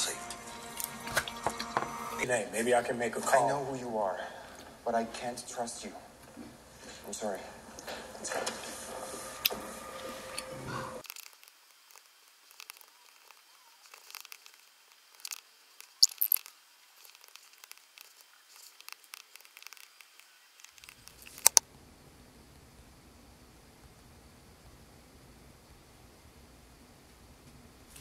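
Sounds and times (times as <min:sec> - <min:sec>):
sharp clicks: 0:17.1 - 0:21.6.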